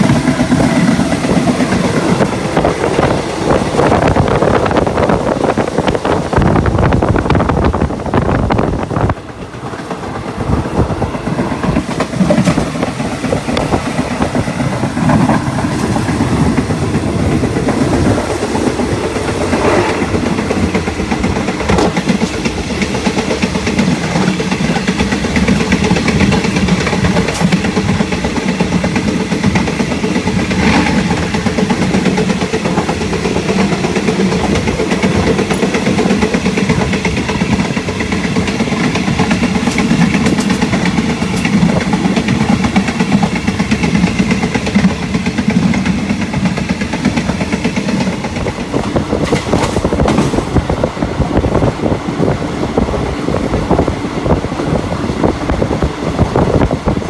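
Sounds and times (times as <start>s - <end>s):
train wheels rumbling on rail: 0.0s - 57.0s
clacks at rail joints: 9.0s - 50.9s.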